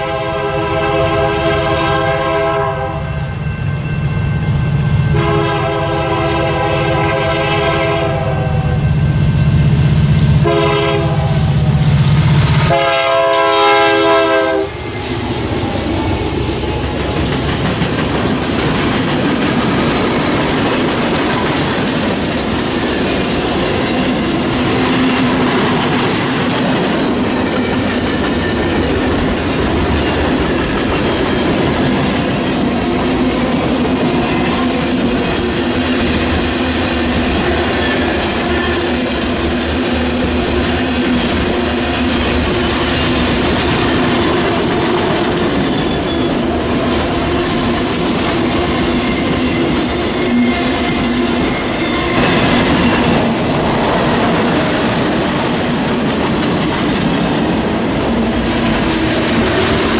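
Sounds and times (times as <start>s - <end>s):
train air horn blasts: 0.0s - 3.1s, 5.1s - 8.9s, 10.4s - 11.8s, 12.4s - 14.8s
train wheels clicking over rail joints: 14.6s - 59.9s.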